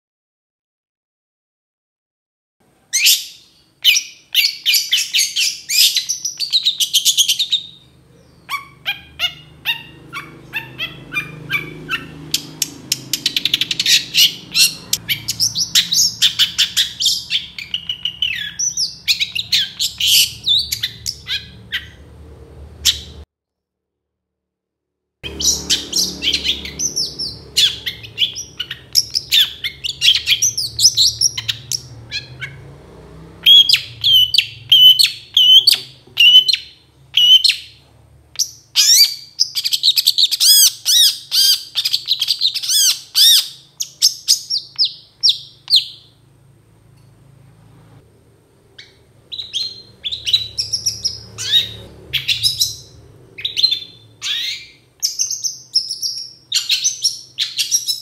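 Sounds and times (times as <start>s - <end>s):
shrike singing: 2.9s - 22.2s, 25.2s - 32.7s, 33.4s - 37.8s.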